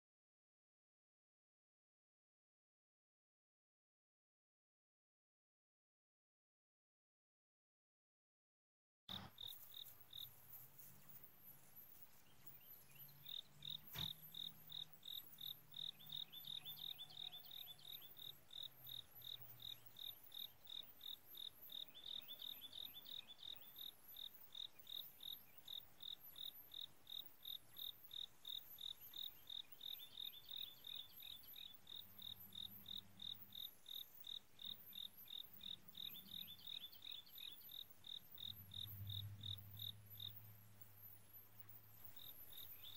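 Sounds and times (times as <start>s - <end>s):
crickets chirping: 9.1s - 42.9s.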